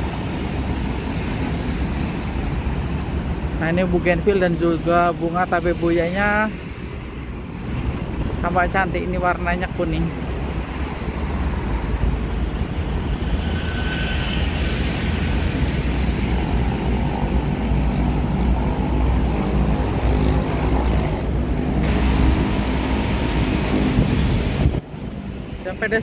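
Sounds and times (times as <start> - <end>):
road traffic: 0.0 - 26.0
wind buffeting microphone: 5.8 - 26.0.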